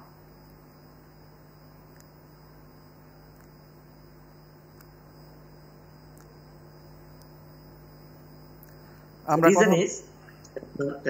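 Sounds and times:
electrical mains hum: 0.0s - 11.0s
light hiss: 0.0s - 11.0s
faint ticks: 1.8s - 2.3s, 3.2s - 3.7s, 4.7s - 5.2s, 6.0s - 7.6s, 8.5s - 9.2s.

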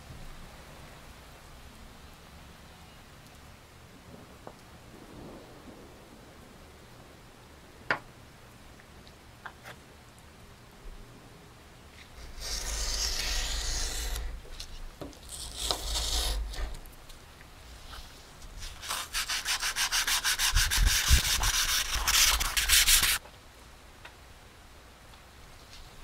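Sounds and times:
knife cutting sandpaper: 12.2s - 16.9s, 18.6s - 23.2s.

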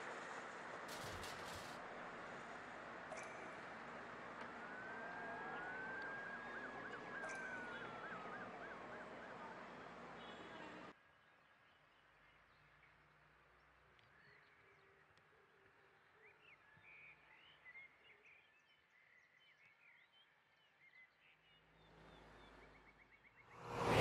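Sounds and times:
soft rushing noise: 23.6s - 24.0s.

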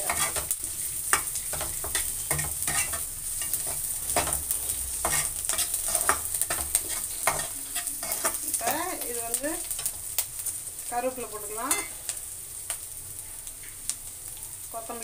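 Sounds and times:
metal spatula scraping pan: 0.0s - 8.7s, 11.7s - 12.0s
oil sizzling: 0.0s - 15.0s.

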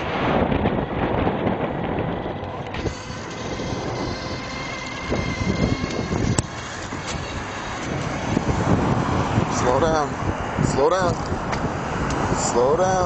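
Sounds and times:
wheels rumbling on concrete: 0.0s - 13.0s
wind buffeting microphone: 0.0s - 13.0s
faint high whine: 2.7s - 8.6s.

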